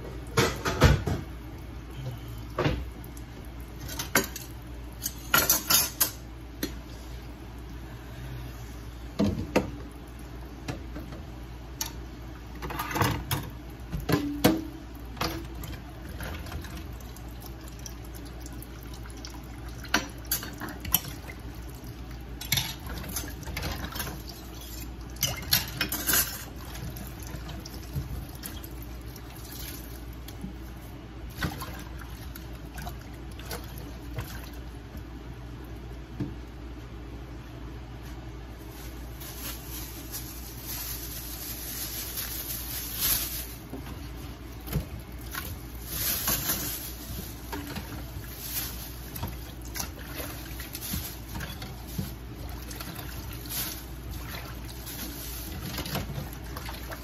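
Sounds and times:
steady low hum: 0.0s - 12.6s.

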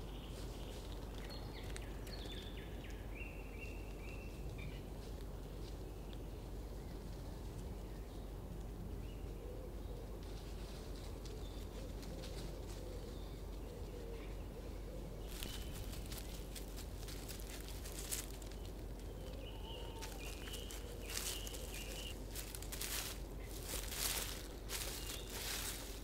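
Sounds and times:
steady low hum: 0.0s - 26.0s
faint bird calls: 18.2s - 22.2s.

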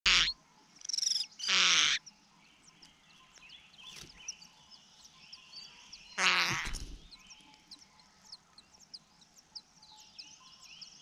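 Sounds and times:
nestlings begging harsh calls: 0.1s - 2.1s, 6.0s - 7.4s
birds chirping and whistling: 3.2s - 7.6s.

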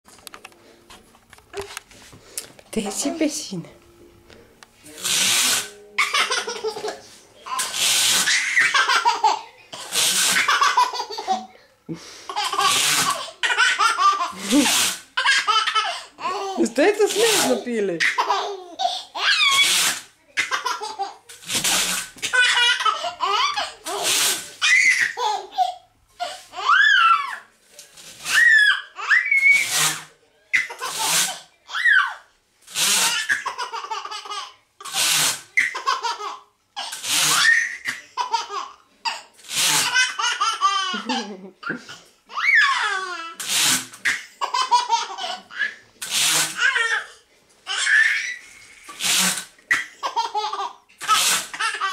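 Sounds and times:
window blinds rattling: 5.0s - 6.9s, 7.5s - 9.1s, 9.8s - 10.7s, 12.5s - 13.2s, 14.4s - 15.5s, 16.6s - 18.3s, 21.3s - 22.9s, 23.8s - 25.1s, 30.8s - 31.4s, 32.6s - 33.5s, 34.8s - 35.5s, 36.9s - 37.8s, 39.4s - 40.2s, 43.4s - 44.1s, 46.0s - 46.9s, 47.9s - 49.6s, 51.0s - 51.9s
baby laughing: 5.0s - 11.6s, 12.3s - 19.8s, 20.4s - 21.3s, 22.2s - 27.4s, 30.6s - 32.2s, 33.0s - 43.4s, 44.0s - 45.8s, 49.7s - 51.9s.

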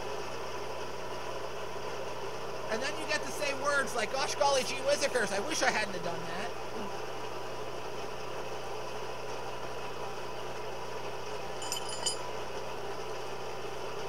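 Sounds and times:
light metallic clinks: 11.5s - 12.4s.

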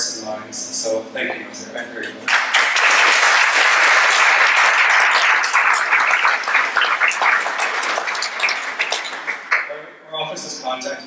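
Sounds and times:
audience applauding: 2.3s - 9.7s.

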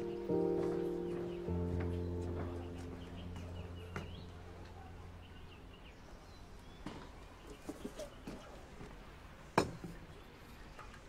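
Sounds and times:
background music: 0.0s - 5.9s
birds chirping outside: 0.0s - 11.0s.

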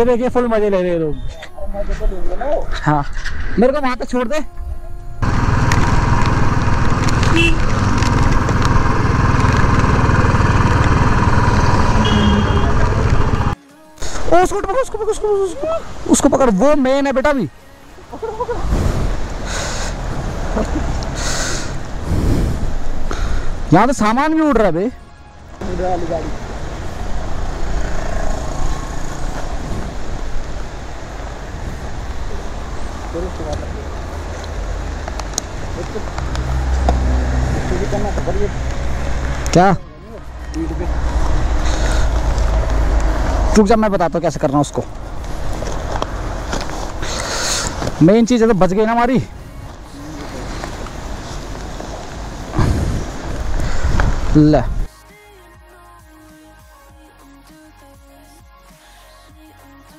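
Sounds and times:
motorcycle engine running: 5.2s - 13.6s
wind buffeting microphone: 49.5s - 54.9s.

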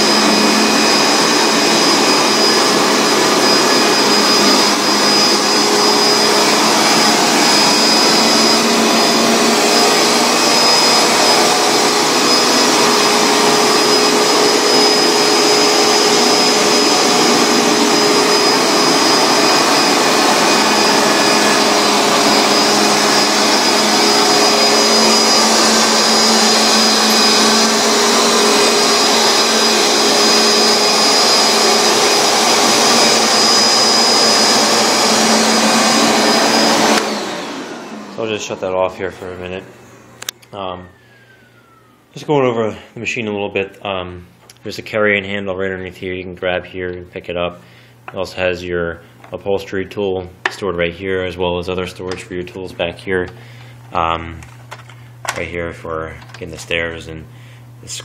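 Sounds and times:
carpet cleaner suction motor droning: 0.0s - 42.1s.

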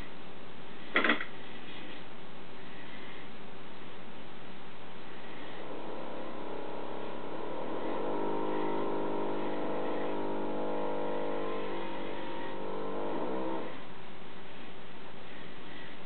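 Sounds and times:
electric motor whirring: 5.2s - 13.8s.

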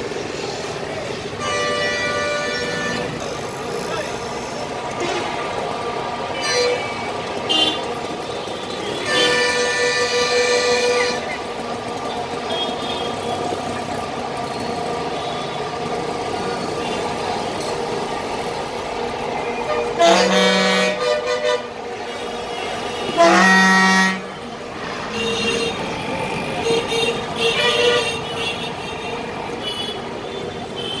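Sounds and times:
street traffic engines: 0.0s - 31.0s
loud vehicle horn blasts: 1.4s - 3.2s, 5.0s - 5.4s, 6.3s - 11.3s, 19.7s - 24.4s, 25.1s - 25.9s, 26.6s - 31.0s.

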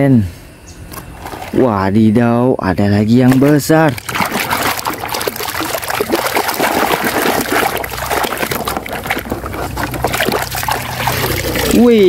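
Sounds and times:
water sloshing in plastic basin: 1.2s - 1.9s, 3.1s - 12.0s.

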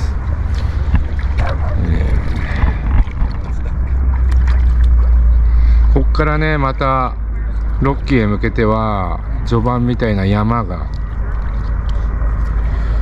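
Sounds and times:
wind buffeting microphone: 0.0s - 5.4s
distant voices: 0.0s - 13.0s.

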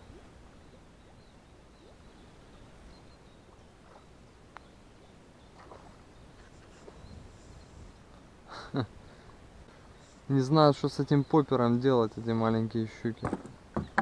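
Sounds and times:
distant bird chirps: 0.0s - 8.2s, 12.9s - 14.0s
soft ticks: 4.5s - 4.7s.

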